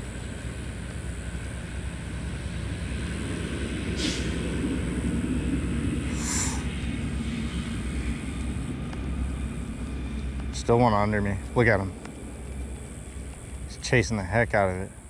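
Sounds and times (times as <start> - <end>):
low outdoor rumble: 0.0 - 15.0
brief hisses: 4.0 - 4.4, 6.1 - 6.7.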